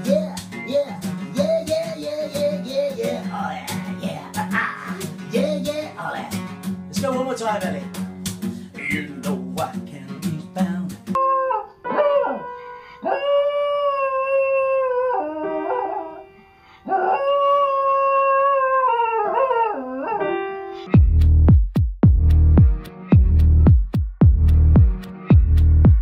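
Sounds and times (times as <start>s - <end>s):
dog howling: 11.2s - 16.3s, 16.9s - 20.4s
electronic music with heavy bass: 20.9s - 26.0s.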